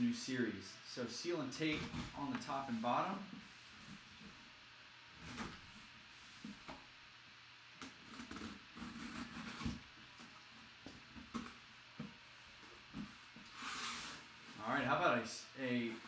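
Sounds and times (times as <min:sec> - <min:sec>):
box cutter scraping along tape: 0:08.1 - 0:09.8.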